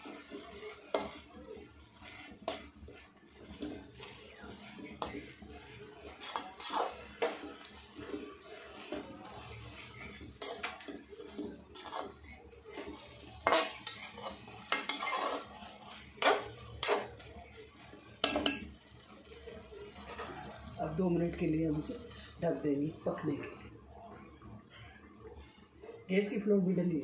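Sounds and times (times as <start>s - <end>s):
metal spoon scraping in pan: 0.0s - 20.7s
spoon clanking on pan: 0.9s - 1.2s, 2.4s - 2.7s, 6.0s - 7.6s, 10.0s - 12.2s, 12.8s - 15.5s, 16.2s - 17.2s, 18.2s - 18.8s.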